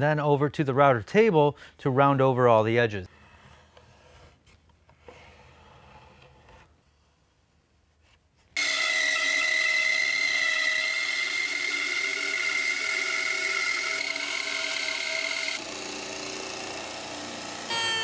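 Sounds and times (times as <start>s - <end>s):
bandsaw cutting wood: 8.6s - 18.0s.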